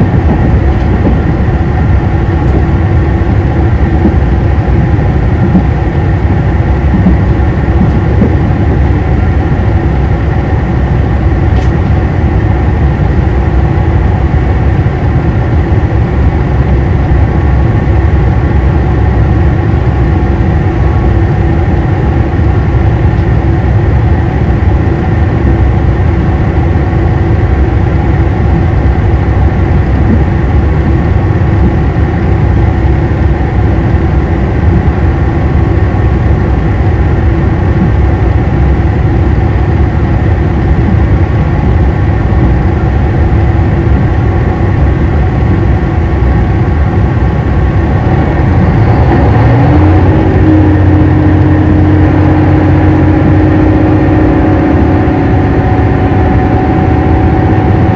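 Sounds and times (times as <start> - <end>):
railcar diesel engine running: 0.0 - 57.9.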